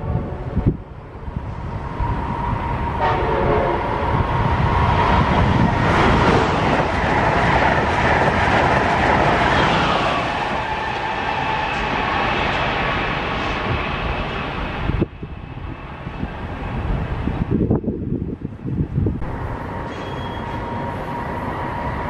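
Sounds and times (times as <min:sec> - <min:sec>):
train rolling on rails: 0:00.0 - 0:22.0
train horn blast: 0:03.0 - 0:04.0.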